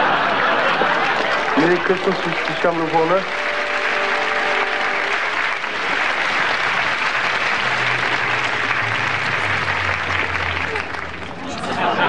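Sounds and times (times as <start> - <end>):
audience applauding: 0.0 - 12.0
low droning tone: 7.2 - 11.2.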